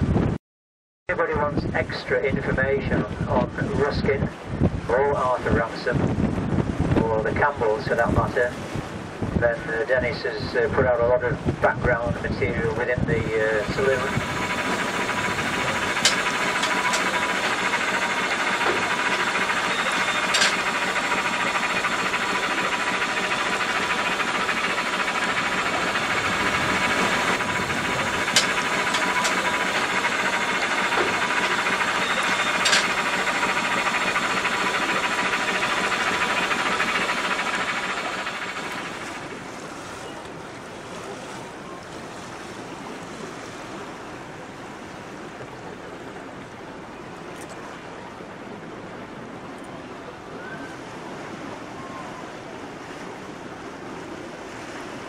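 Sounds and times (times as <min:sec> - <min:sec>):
wash of water: 0:13.1 - 0:45.0.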